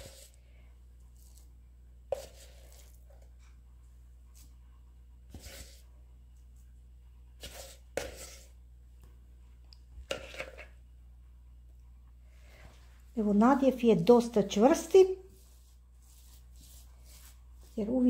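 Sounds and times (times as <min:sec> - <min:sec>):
spatula scraping bowl: 0:00.0 - 0:00.4, 0:02.1 - 0:03.3, 0:05.3 - 0:05.8, 0:07.4 - 0:08.6, 0:10.0 - 0:10.8, 0:14.2 - 0:18.0
spatula dabbing onto dough: 0:00.0 - 0:03.4, 0:05.2 - 0:05.9, 0:07.4 - 0:08.6, 0:10.1 - 0:10.7, 0:14.2 - 0:18.0.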